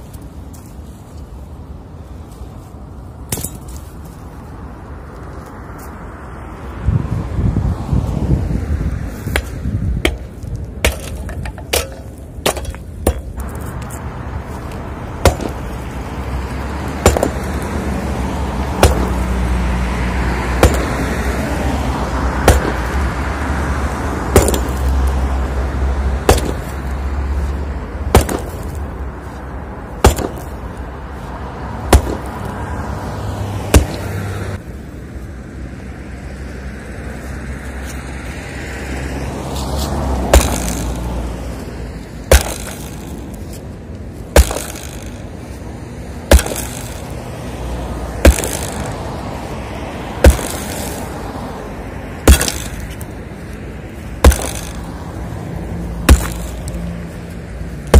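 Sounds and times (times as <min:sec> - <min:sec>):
sledgehammer striking concrete: 0:09.3 - 0:13.5, 0:15.2 - 0:15.7, 0:17.0 - 0:17.6, 0:18.8 - 0:19.2, 0:20.6 - 0:21.1, 0:22.4 - 0:22.9, 0:24.3 - 0:24.9, 0:26.2 - 0:26.8, 0:28.1 - 0:28.8, 0:30.0 - 0:30.6, 0:31.9 - 0:32.3, 0:33.7 - 0:34.1, 0:40.3 - 0:41.0, 0:42.3 - 0:43.2, 0:44.4 - 0:45.2, 0:46.3 - 0:47.1, 0:48.2 - 0:49.0, 0:50.2 - 0:51.1, 0:52.3 - 0:52.9, 0:54.2 - 0:54.9, 0:56.1 - 0:56.7.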